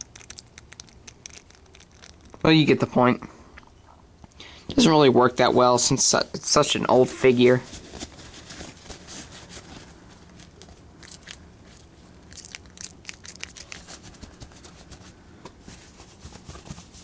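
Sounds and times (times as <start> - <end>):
paper towel crinkling and rustling: 6.5 - 12.0.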